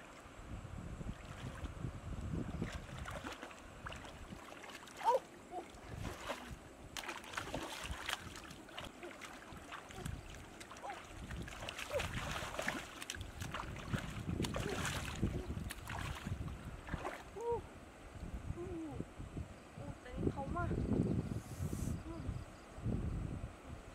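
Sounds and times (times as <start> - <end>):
river water splashing: 1.1 - 17.6.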